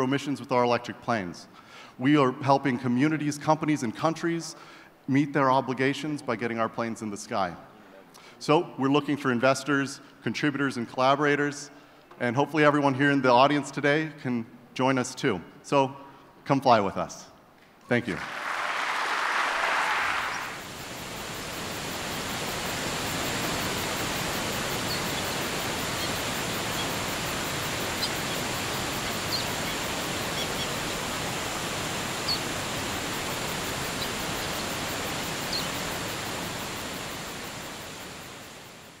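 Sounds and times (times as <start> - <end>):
applause: 18.0 - 20.6
waterfall rushing: 18.3 - 39.0
faint bird chirps: 24.8 - 27.0, 27.9 - 31.0, 32.2 - 32.5, 33.8 - 34.8, 35.4 - 35.8.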